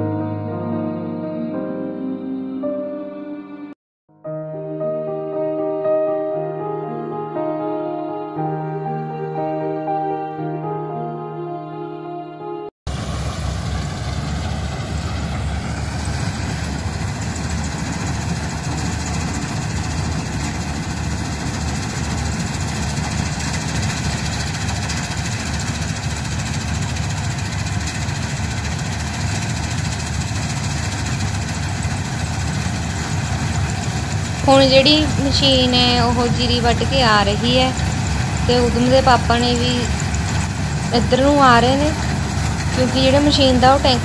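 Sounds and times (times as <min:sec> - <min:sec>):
combine harvester drone: 0:12.9 - 0:44.0.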